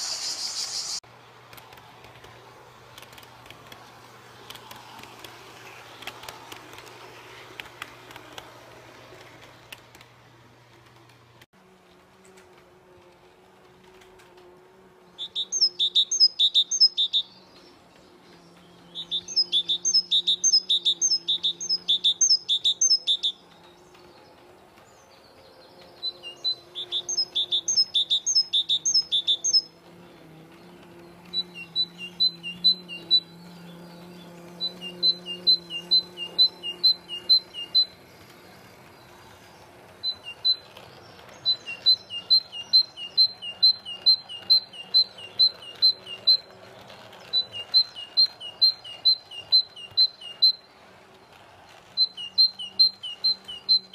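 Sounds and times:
songbird chirping: 14.0 - 53.9.

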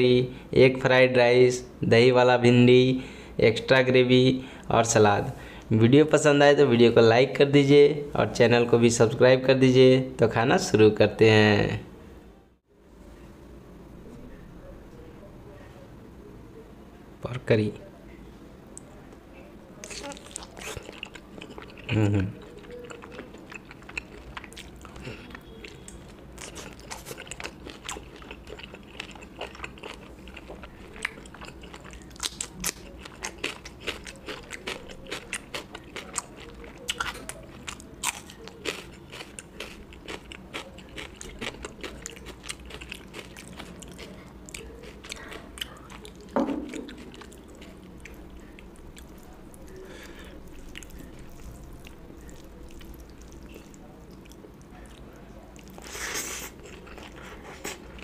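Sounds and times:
person chewing food: 19.8 - 58.0.

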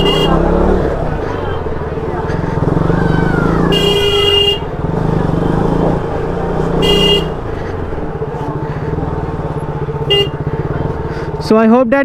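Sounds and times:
motorcycle horn toot: 0.0 - 0.6, 3.6 - 4.8, 6.7 - 7.4, 10.0 - 10.5
motorcycle engine running: 0.0 - 12.0.

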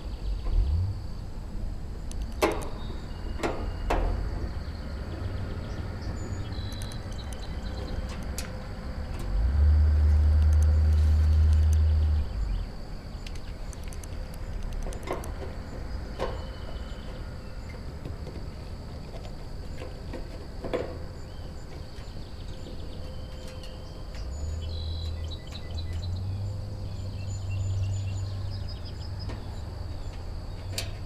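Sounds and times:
low rumble on microphone: 2.8 - 14.6.

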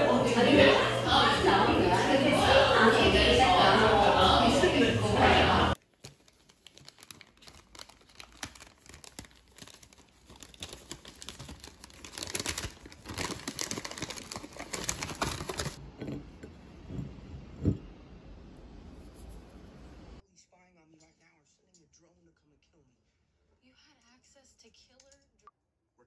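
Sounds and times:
crinkling and rustling: 5.8 - 17.8.

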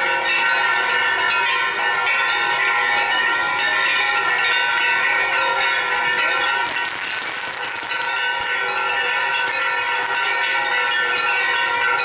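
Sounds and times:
firework fountains hissing: 5.9 - 10.7.

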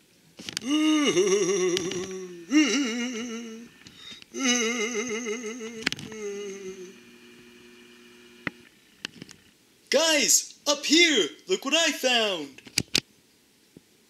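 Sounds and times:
person humming with vibrato: 0.6 - 7.2.

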